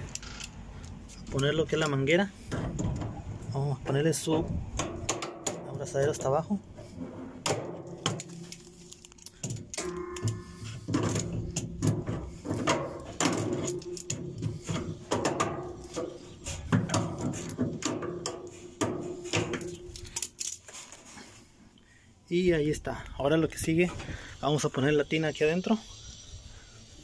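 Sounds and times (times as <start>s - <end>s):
tools rattling on metal cabinet: 9.4s - 20.2s.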